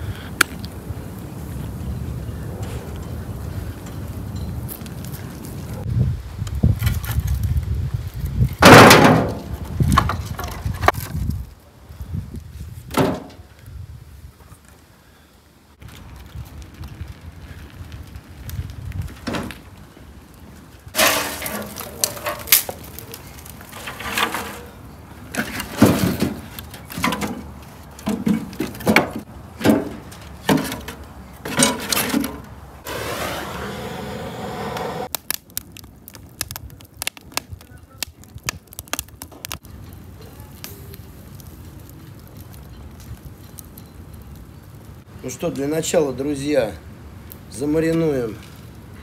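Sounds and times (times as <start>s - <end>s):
wood fire crackling: 0.0s - 49.0s
firewood logs clattering: 8.3s - 11.4s, 12.8s - 13.7s, 15.8s - 33.4s, 34.8s - 44.8s.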